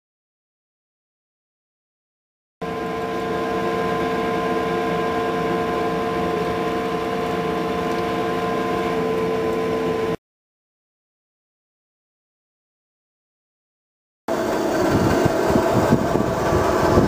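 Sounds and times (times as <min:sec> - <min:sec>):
furnace machine hum: 0:02.6 - 0:10.2, 0:14.3 - 0:17.0.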